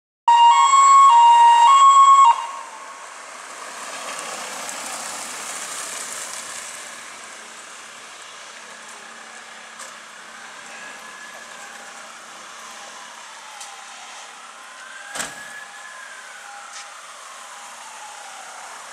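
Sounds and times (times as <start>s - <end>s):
two-tone emergency siren: 0.3s - 3.1s, 8.2s - 18.9s.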